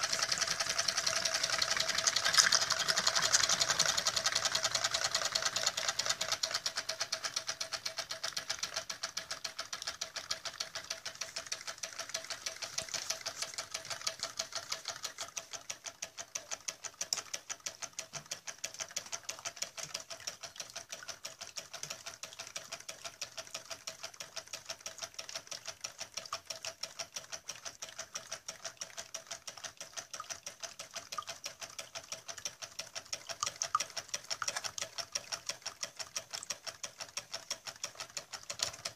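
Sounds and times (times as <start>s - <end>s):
engine rapid mechanical clicking: 0.0s - 38.9s.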